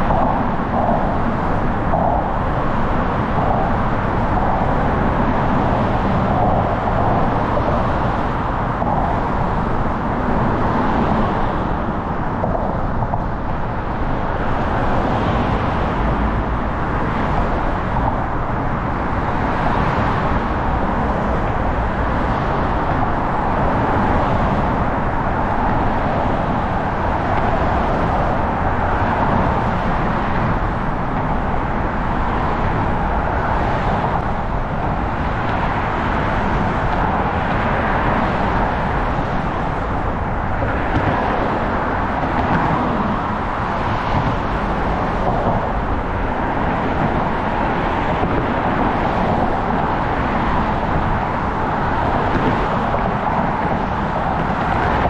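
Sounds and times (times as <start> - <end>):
road traffic roar: 0.0 - 55.0.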